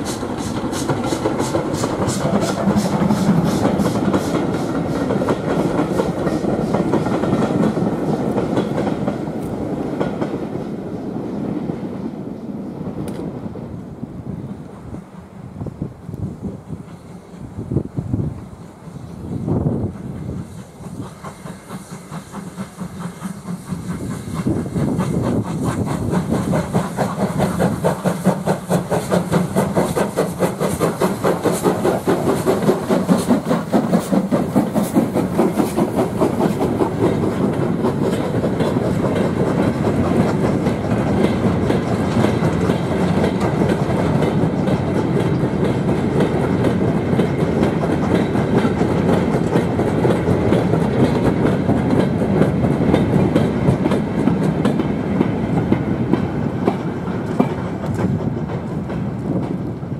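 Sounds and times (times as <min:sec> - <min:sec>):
steam locomotive exhaust beats: 0:00.0 - 0:59.9
wagon wheels clicking over rail joints: 0:24.5 - 0:59.8.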